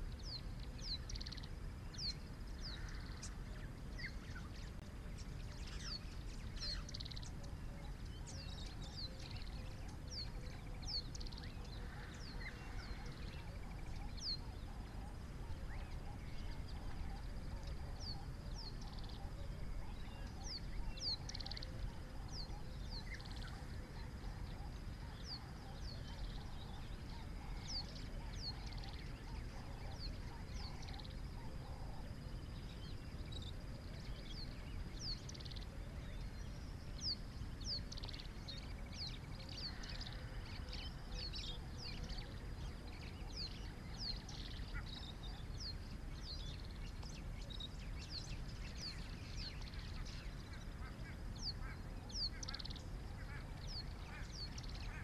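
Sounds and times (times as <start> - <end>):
birds chirping: 0.0 - 55.0.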